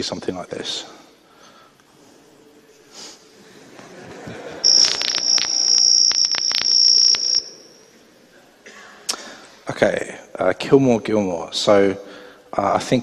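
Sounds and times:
steady high-pitched tone: 4.6 - 8.0.

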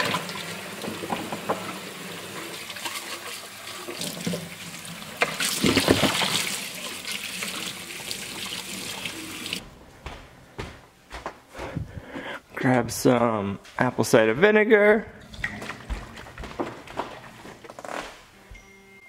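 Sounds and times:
faucet running into sink: 0.0 - 9.6
water splashing in plastic container: 5.2 - 6.6.

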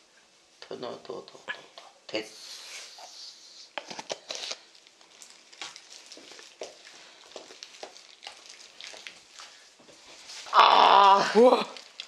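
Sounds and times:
wooden spoon stirring thick paste: 1.6 - 10.5.

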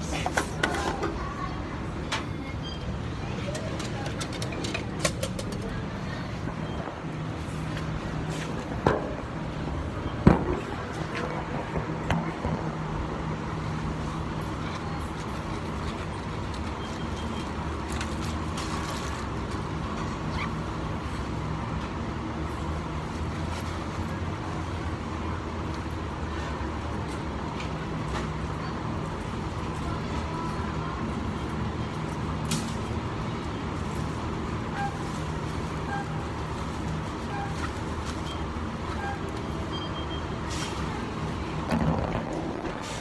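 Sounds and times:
short faint beeps: 37.3 - 40.6.

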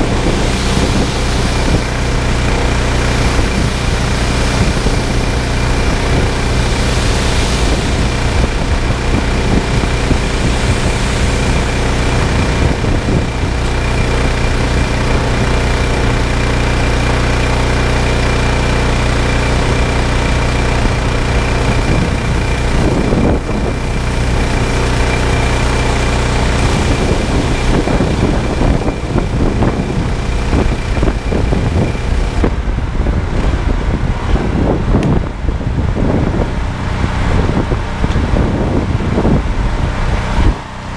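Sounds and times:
water spray hiss: 0.0 - 32.5
petrol engine running: 0.0 - 40.9.

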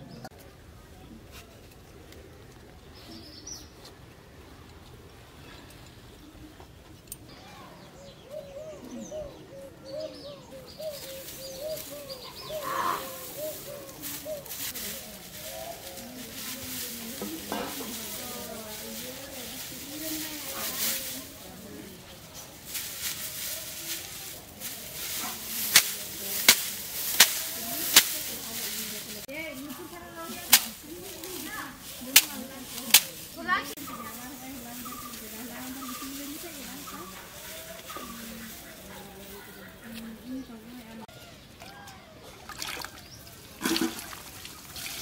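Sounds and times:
birds calling: 5.4 - 43.6
dry straw rustling: 9.9 - 41.3, 43.2 - 45.0
straw bundle slapping: 10.8 - 40.4.

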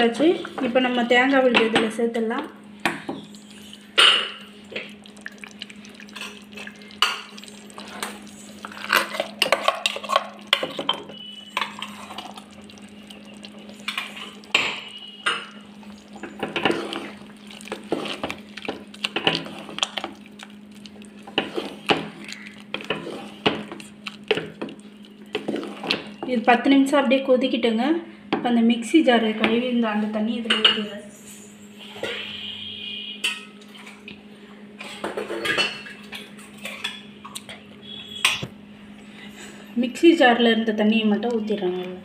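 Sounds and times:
metal ladle scraping pot: 7.0 - 12.5, 16.2 - 20.1, 21.3 - 24.5, 25.3 - 26.4.

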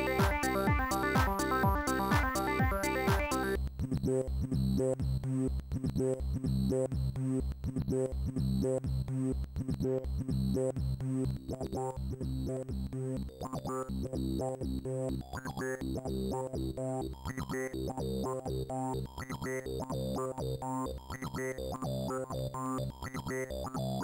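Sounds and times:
electronic synthesizer music: 0.0 - 3.6.

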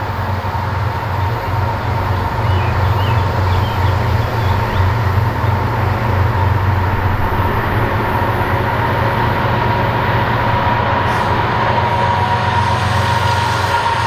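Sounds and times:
diesel locomotive drone: 0.0 - 14.0
locomotive high whine: 0.0 - 14.0.

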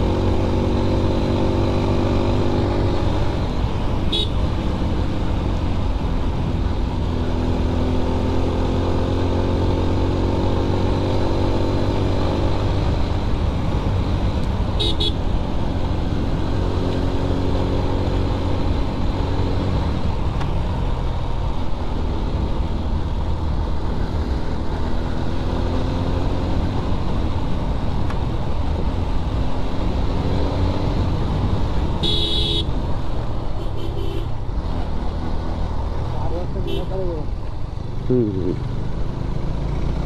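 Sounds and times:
horn beeping: 32.0 - 32.7.

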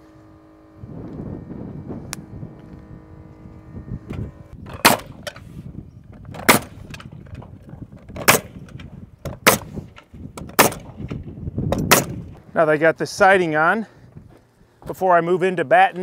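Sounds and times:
nail gun firing: 4.7 - 5.4, 6.3 - 7.2, 8.1 - 12.3.

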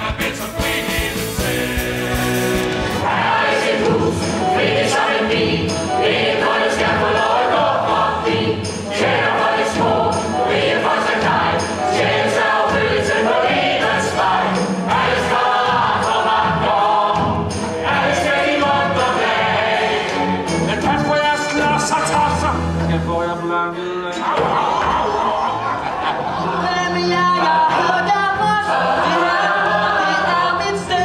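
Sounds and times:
ensemble singing in chorus: 0.0 - 20.8, 27.2 - 30.9
instrumental accompaniment with beat: 0.0 - 22.9.

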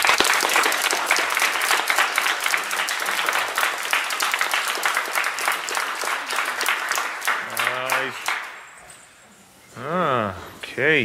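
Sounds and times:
group of people applauding: 0.0 - 8.8.

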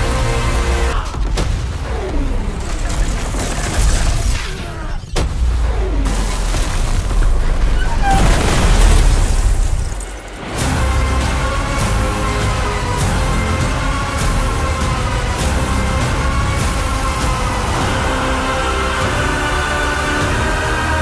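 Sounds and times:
explosion blast rumbling: 0.9 - 11.9.

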